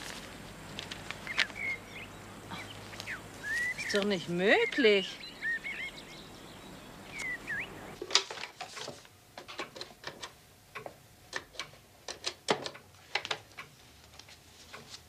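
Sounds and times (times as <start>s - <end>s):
bird chirping: 0.9s - 8.0s.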